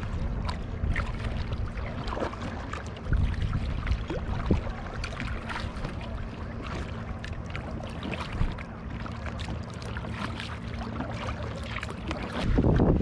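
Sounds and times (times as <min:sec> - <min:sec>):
wind on microphone: 0:00.0 - 0:06.2, 0:12.2 - 0:13.0
water splashing from paddling: 0:00.0 - 0:13.0.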